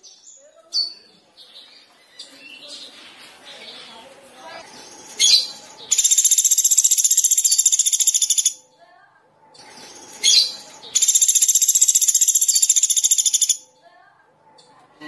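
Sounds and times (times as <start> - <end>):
sharp bird chirp: 5.2 - 8.6, 10.2 - 13.6.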